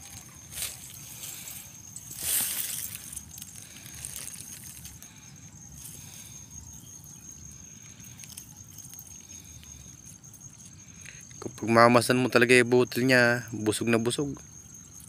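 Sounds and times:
rice leaves rustling: 0.0s - 6.2s.

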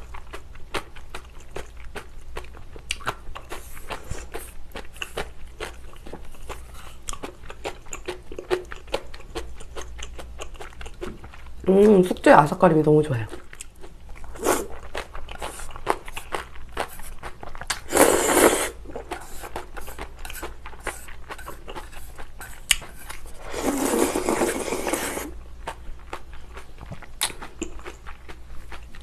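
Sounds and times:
crunchy chewing: 0.0s - 11.6s, 13.3s - 29.0s
slurping soup: 14.3s - 14.8s, 15.4s - 25.4s.

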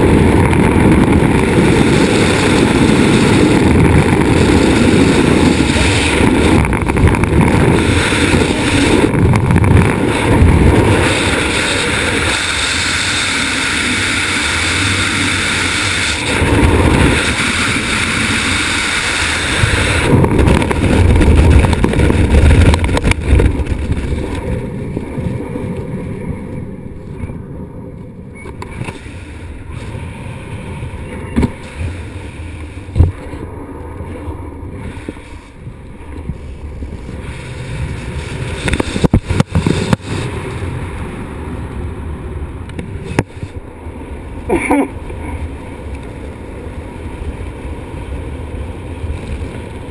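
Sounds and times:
wind rushing and buffeting microphone: 0.0s - 49.9s.

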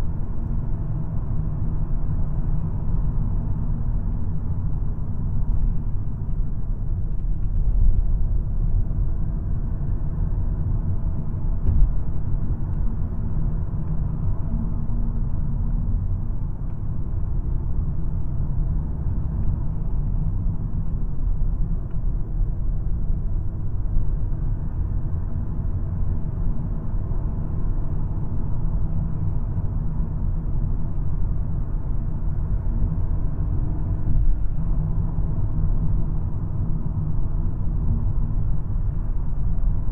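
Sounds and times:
road and engine rumble: 0.0s - 39.9s
brief thump: 11.6s - 11.9s.

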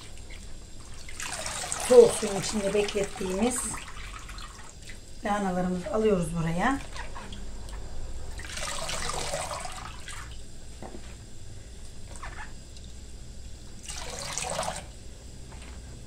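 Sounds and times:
water splashing: 0.0s - 5.0s.

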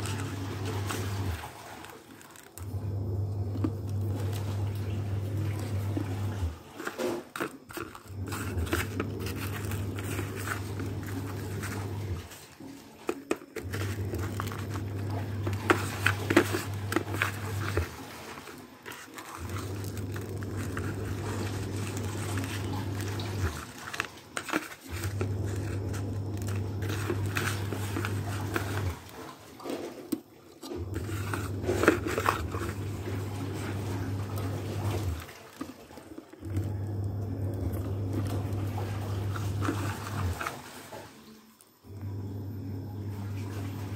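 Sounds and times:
rice grains crunching and rustling: 0.0s - 2.7s, 5.8s - 30.0s
steady low hum: 7.7s - 12.8s, 13.5s - 29.3s.

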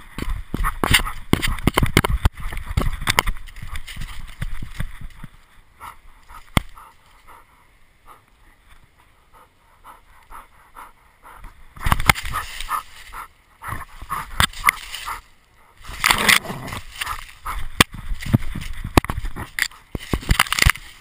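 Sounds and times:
rustling through dry leaves: 0.0s - 7.5s, 11.8s - 21.0s
dog panting: 9.2s - 11.5s.

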